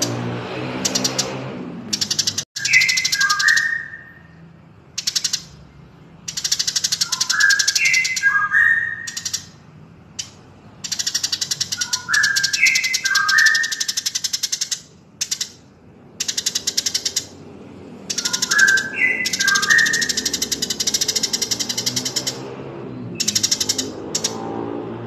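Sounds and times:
high bird chirps: 0.8s - 24.5s
whistled bird notes: 2.0s - 4.4s, 6.3s - 9.6s, 10.9s - 14.8s, 18.1s - 24.0s.

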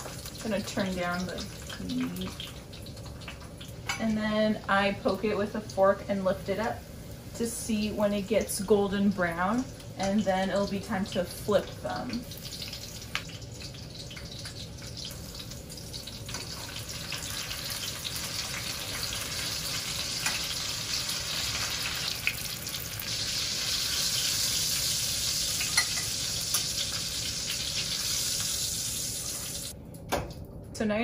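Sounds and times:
meat sizzling in a pan: 0.0s - 3.9s, 11.5s - 29.7s.

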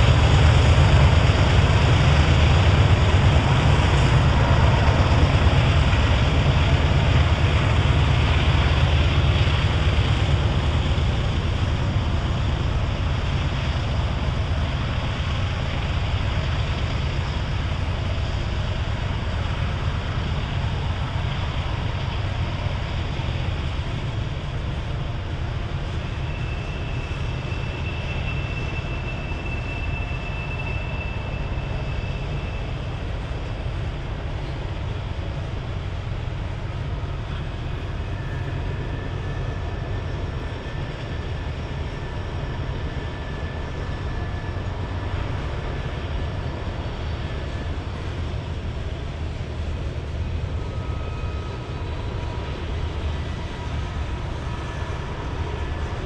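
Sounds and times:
train cars rumbling on rails: 0.0s - 56.0s
high wheel squeals: 25.8s - 33.4s, 50.2s - 56.0s.

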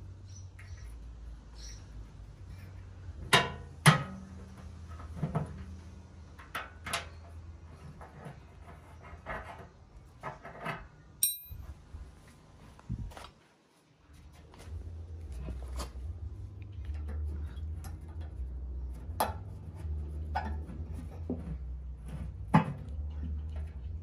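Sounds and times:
short metallic ping: 11.2s - 11.6s
low steady hum: 14.0s - 24.0s.

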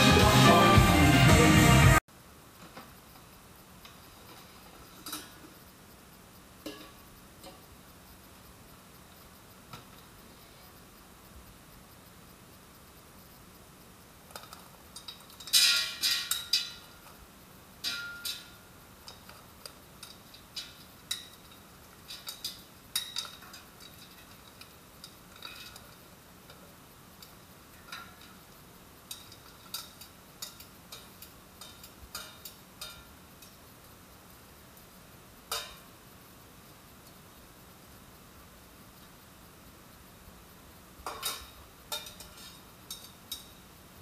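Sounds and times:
metal tongs and bowl clinking: 5.0s - 5.4s, 14.3s - 17.2s, 17.8s - 26.0s, 27.2s - 28.5s, 29.1s - 33.6s, 35.5s - 35.8s, 41.0s - 43.6s.

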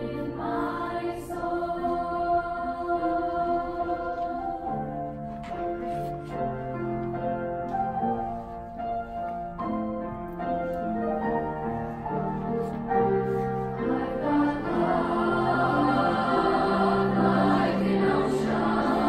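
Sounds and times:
children's choir singing: 0.0s - 5.8s, 13.7s - 19.0s
grand piano: 0.0s - 19.0s.

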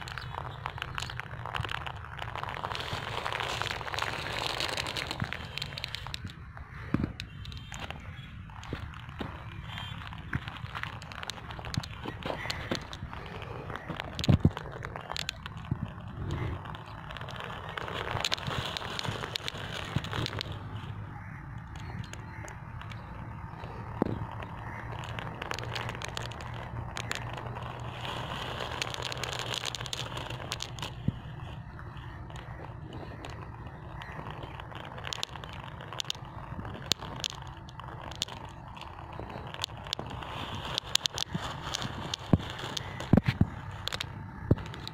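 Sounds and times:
marbles rolling on dirt: 0.0s - 44.9s
steady low rumble: 0.0s - 44.9s.

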